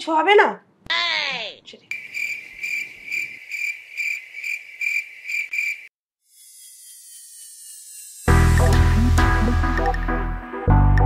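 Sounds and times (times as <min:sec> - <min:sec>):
cricket chirp sound effect: 0:01.9 - 0:09.0.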